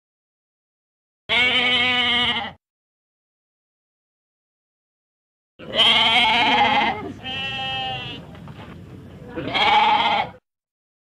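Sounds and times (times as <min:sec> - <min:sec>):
goat bleating: 0:01.3 - 0:02.6, 0:05.6 - 0:08.3, 0:09.3 - 0:10.4.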